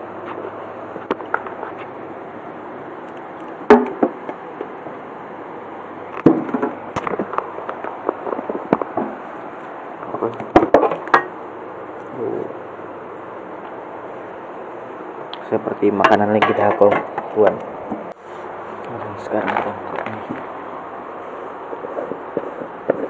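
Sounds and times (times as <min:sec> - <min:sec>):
steady hiss: 0:00.0 - 0:23.0
containers knocking and clattering: 0:06.2 - 0:09.2, 0:16.0 - 0:17.6.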